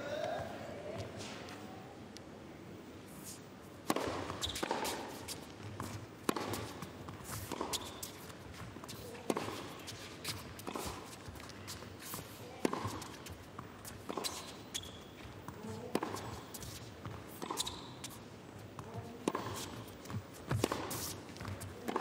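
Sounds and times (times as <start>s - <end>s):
tennis racket hitting ball: 3.8s - 11.4s, 12.2s - 14.6s, 15.2s - 18.0s, 18.8s - 22.0s.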